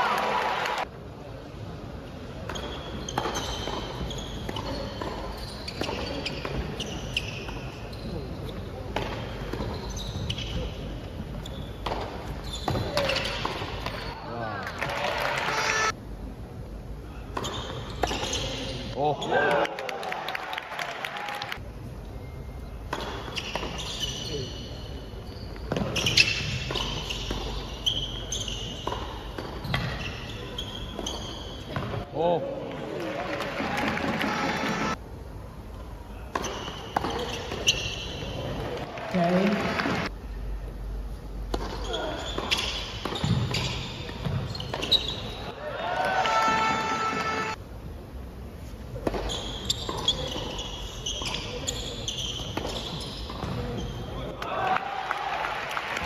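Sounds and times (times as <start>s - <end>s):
sneakers squeaking on court: 2.4s - 14.2s, 17.4s - 19.4s, 22.2s - 32.1s, 36.3s - 38.9s, 41.5s - 45.6s, 48.9s - 54.3s.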